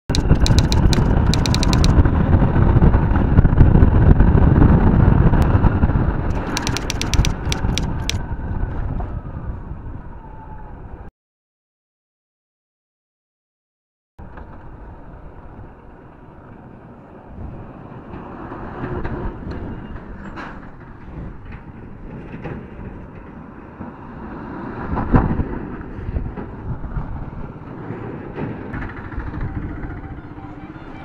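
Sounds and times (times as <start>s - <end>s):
scattered knocks: 0.1s - 2.0s, 6.3s - 8.2s
traffic engines and tyres rumbling: 14.2s - 31.0s.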